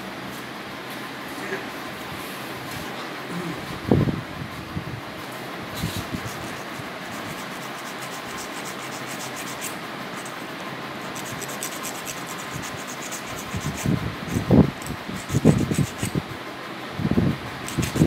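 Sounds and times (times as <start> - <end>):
electric nail grinder rasping: 6.0 - 16.2, 17.6 - 18.0.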